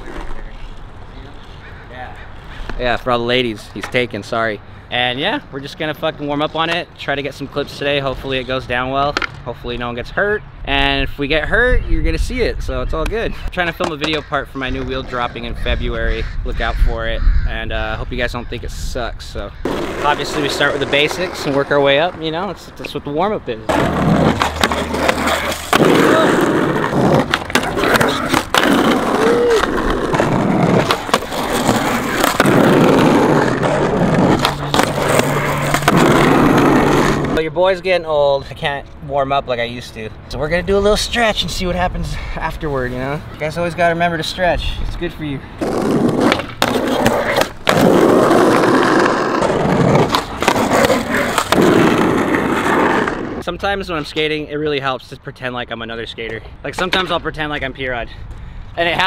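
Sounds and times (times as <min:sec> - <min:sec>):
skateboard rolling: 0:00.0 - 0:03.1, 0:19.6 - 0:23.0, 0:23.6 - 0:37.4, 0:45.6 - 0:53.5
skateboard clacking on ground: 0:09.1 - 0:09.4, 0:13.8 - 0:14.9, 0:23.7 - 0:37.4, 0:45.7 - 0:53.1.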